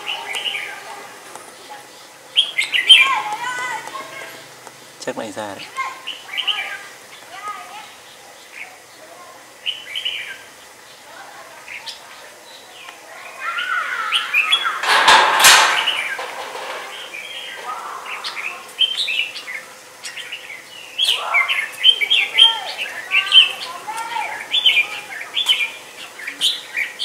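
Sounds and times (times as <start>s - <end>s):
small songbirds chirping: 0.0s - 14.8s, 16.9s - 27.0s
sharp knocks: 14.8s - 17.0s.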